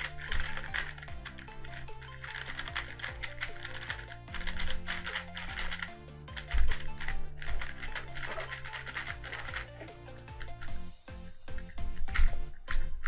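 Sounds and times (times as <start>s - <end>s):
puzzle cube clicking: 0.0s - 10.9s, 11.5s - 13.0s
background music with bass: 0.0s - 13.0s.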